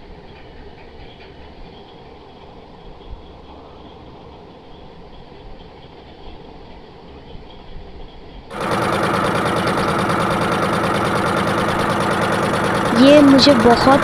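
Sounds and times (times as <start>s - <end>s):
boat engine chugging: 8.5s - 14.0s.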